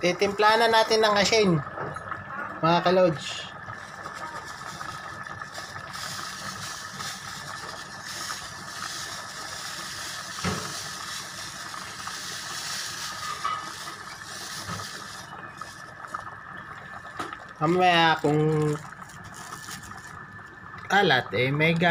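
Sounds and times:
soup simmering with hiss: 0.0 - 21.9
salt pouring from a bag: 3.3 - 20.6.

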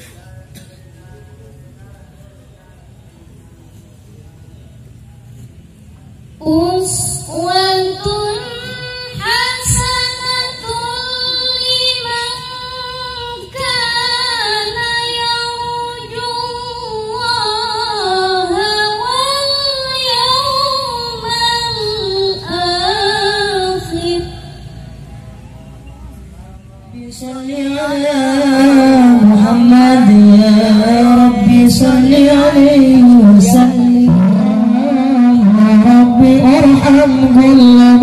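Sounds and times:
woman singing unaccompanied: 6.4 - 24.6, 26.9 - 38.0.

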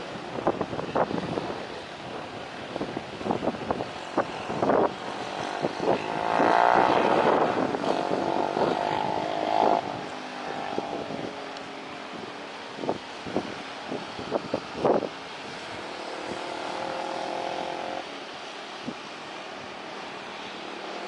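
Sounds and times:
wind buffeting microphone: 0.0 - 18.1
motorcycle engine passing: 5.3 - 11.4, 15.7 - 18.1.

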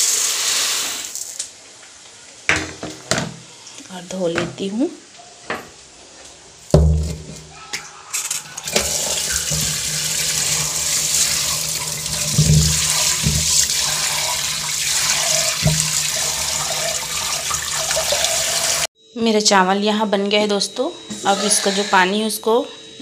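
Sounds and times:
tap water running into bowl: 8.5 - 18.9.

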